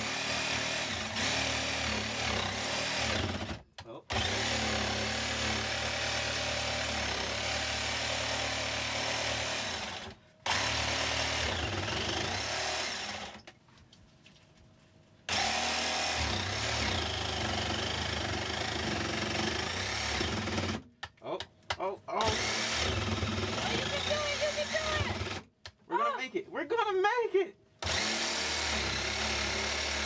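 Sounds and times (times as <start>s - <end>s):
jigsaw cutting countertop: 0.0s - 13.4s, 15.3s - 20.9s, 22.2s - 25.4s, 27.8s - 30.0s.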